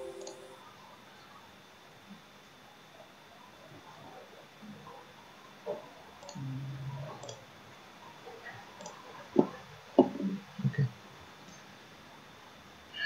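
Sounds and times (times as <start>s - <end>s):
computer mouse clicking: 6.2s - 6.4s, 7.2s - 7.4s.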